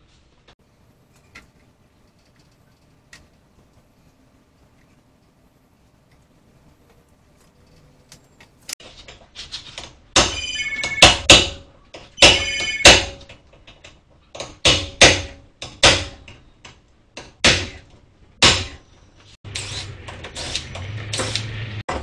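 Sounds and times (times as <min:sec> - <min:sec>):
sharp metallic impacts: 0:10.1 - 0:13.3
sharp metal knocks: 0:10.2 - 0:13.4, 0:14.3 - 0:18.8.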